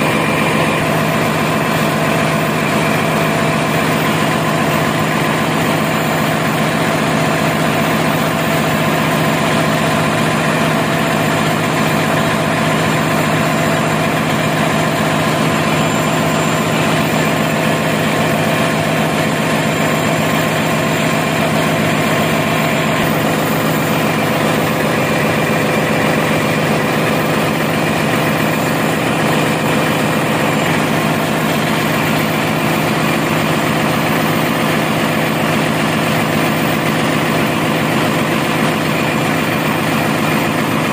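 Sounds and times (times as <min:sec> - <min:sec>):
diesel generator droning: 0:00.0 - 0:40.9.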